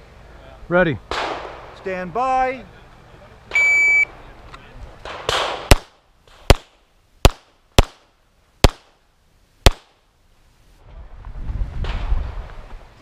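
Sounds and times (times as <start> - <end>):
pistol shots: 1.1 - 1.8, 5.0 - 8.9, 9.6 - 9.9.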